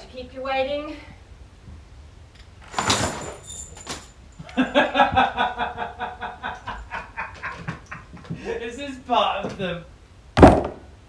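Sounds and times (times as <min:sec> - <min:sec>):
roller blind whirring swish: 0:02.6 - 0:04.1
man laughing: 0:04.4 - 0:09.0.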